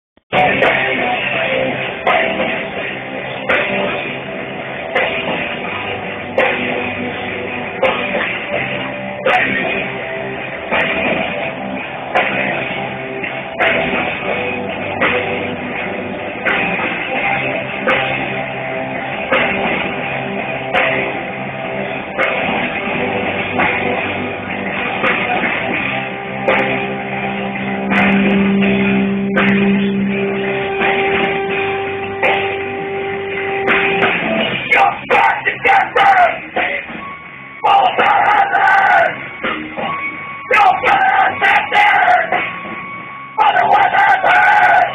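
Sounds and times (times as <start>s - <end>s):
drum kit beat: 0.3s - 44.9s
electric guitars: 0.3s - 44.9s.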